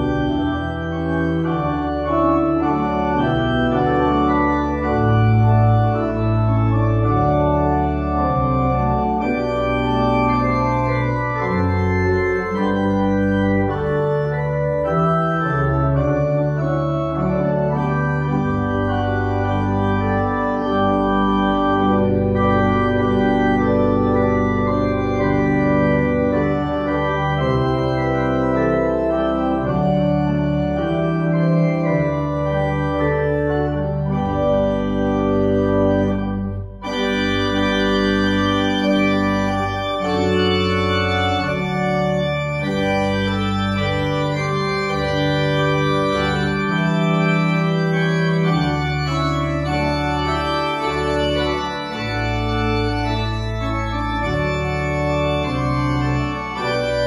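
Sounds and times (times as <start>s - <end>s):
organ chords: 0.0s - 57.0s.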